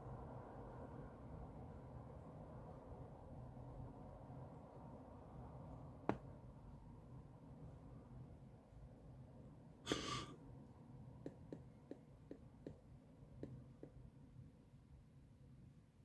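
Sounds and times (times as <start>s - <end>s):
short breathy hiss: 9.9s - 10.4s.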